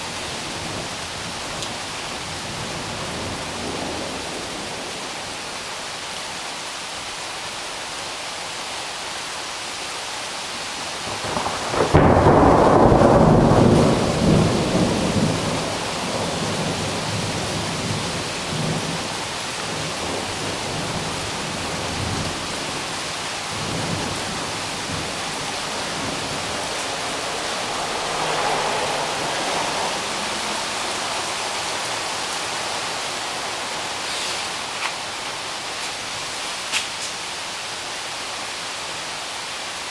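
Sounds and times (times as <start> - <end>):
steady rain: 0.0 - 39.9
thunder rumbling: 11.0 - 33.0.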